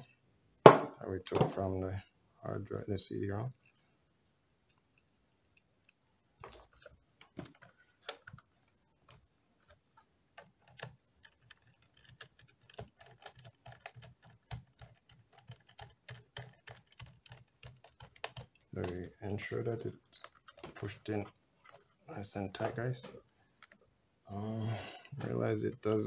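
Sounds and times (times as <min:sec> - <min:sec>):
hand tapping and rubbing case: 0:06.4 - 0:23.8
faint high whine: 0:18.7 - 0:23.6, 0:24.2 - 0:26.0.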